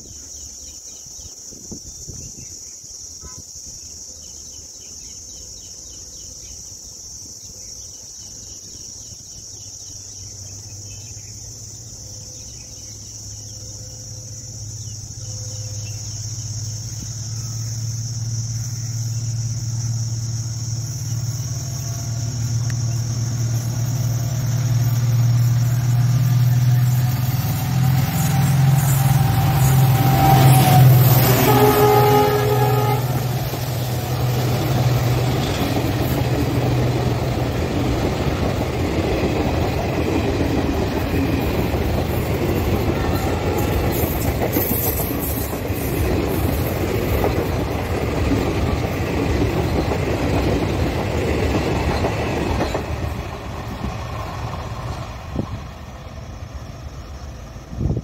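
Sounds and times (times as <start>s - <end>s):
high insect buzz: 1.5s - 38.6s
diesel locomotive engine drone: 4.2s - 58.0s.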